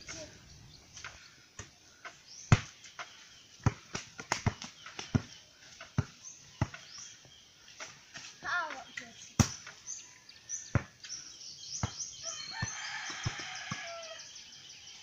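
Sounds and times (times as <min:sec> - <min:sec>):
basketball bouncing on dirt: 0:00.9 - 0:08.3, 0:09.3 - 0:09.9, 0:10.6 - 0:14.2.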